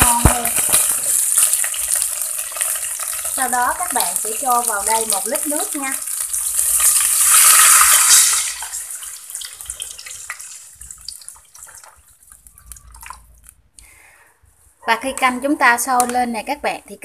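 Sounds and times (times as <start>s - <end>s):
water pouring into hot oil hissing: 0.0s - 13.1s.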